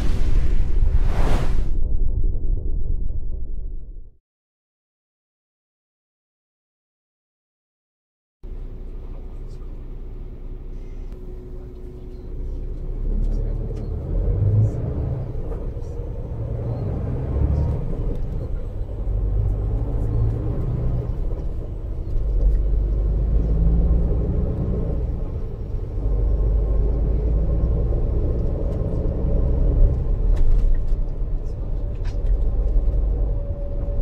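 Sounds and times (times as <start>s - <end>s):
coach engine and road rumble: 8.5s - 34.0s.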